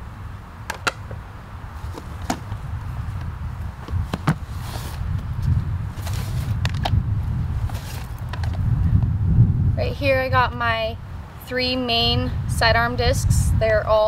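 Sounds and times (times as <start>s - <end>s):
steady low rumble: 0.0s - 14.0s
plastic discs clacking together: 0.7s - 1.2s
bag rustling: 1.8s - 3.2s, 7.6s - 8.6s.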